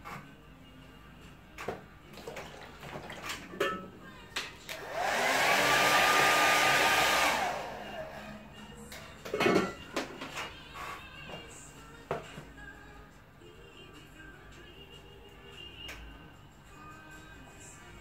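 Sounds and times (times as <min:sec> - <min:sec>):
hair dryer blowing: 0:04.7 - 0:08.5.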